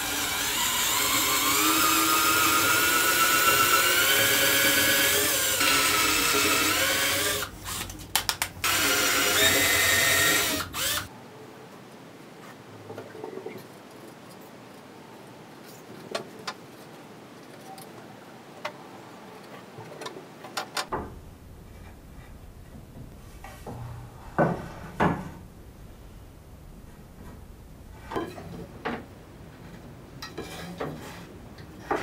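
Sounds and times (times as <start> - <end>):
electric drill running: 8.6 - 11.1.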